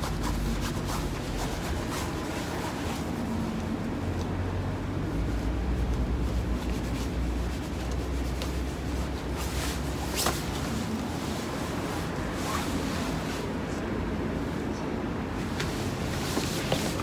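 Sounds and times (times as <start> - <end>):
soft rubbing of rubber: 0.0 - 4.2, 5.2 - 13.6, 15.5 - 17.0.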